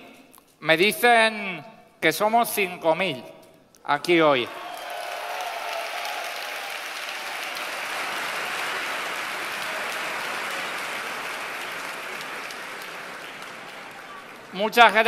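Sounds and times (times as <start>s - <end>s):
large crowd applauding: 4.5s - 15.0s.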